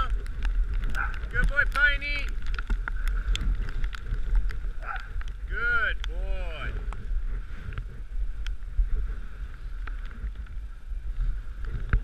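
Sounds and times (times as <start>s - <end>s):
light clicks: 0.0s - 5.4s
wind on microphone: 0.0s - 12.0s.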